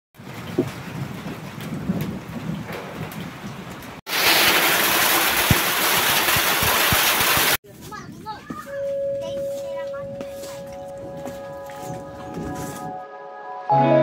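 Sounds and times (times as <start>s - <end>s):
heavy rain and hail on ground: 0.2s - 7.6s.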